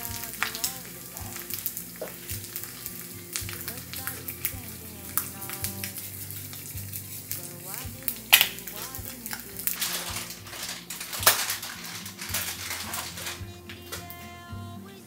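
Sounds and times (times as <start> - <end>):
egg sizzling in a frying pan: 0.0 - 14.2
kitchen clatter: 5.2 - 14.2.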